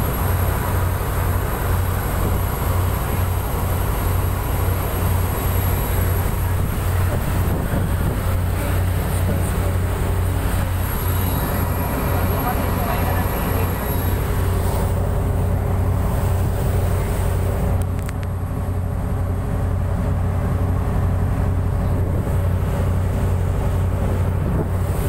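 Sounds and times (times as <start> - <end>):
boat engine drone: 0.0 - 25.0
water rushing along hull: 0.0 - 25.0
faint clicks: 17.8 - 18.4.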